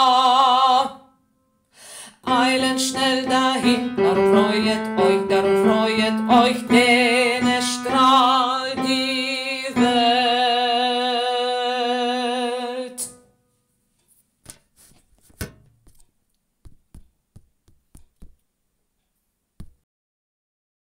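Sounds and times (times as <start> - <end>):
faint knocks and clicks: 14.0 - 19.8.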